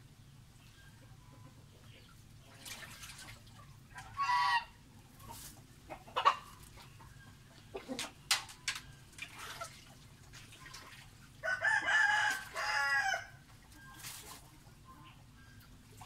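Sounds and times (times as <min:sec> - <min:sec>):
fowl calling: 0:03.9 - 0:08.1.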